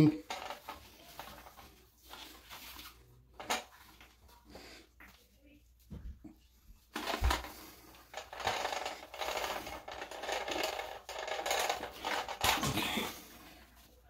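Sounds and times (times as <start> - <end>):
plastic fittings clicking and rattling: 0.1 - 1.7, 6.9 - 13.2.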